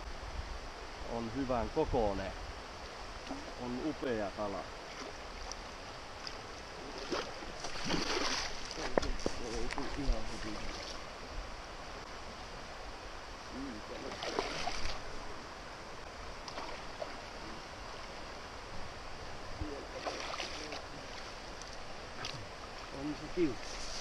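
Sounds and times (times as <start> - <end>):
water splashes: 3.1 - 11.2, 13.6 - 15.4, 16.3 - 18.4, 19.6 - 24.0.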